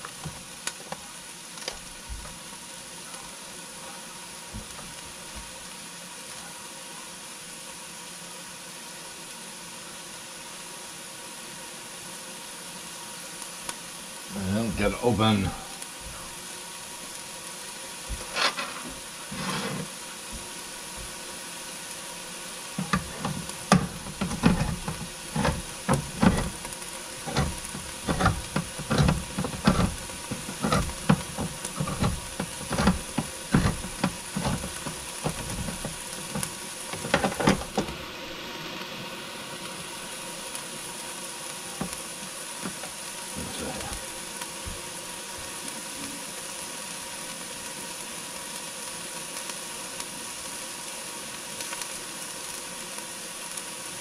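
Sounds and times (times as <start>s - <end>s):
can opener clicking and clunking: 22.8s - 38.0s.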